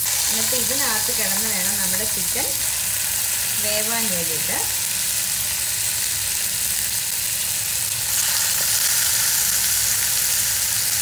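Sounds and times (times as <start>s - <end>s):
chicken sizzling in oil: 0.0s - 11.0s.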